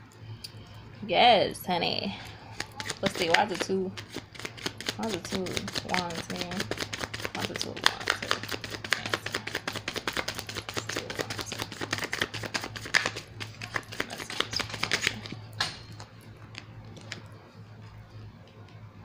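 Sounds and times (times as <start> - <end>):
low electrical hum: 0.0 - 19.0
cards being shuffled: 2.5 - 17.3.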